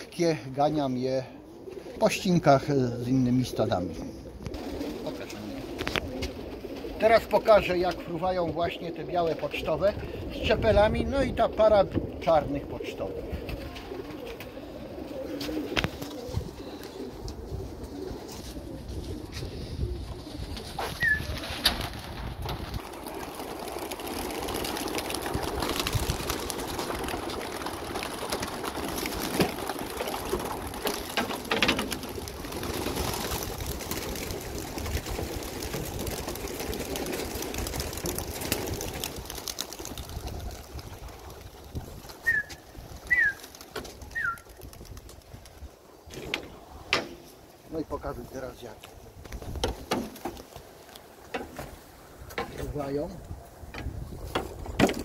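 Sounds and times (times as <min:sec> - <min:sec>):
pigeons cooing: 0:00.0 - 0:21.8, 0:22.8 - 0:44.8
flock wingbeats rustling: 0:00.0 - 0:52.5.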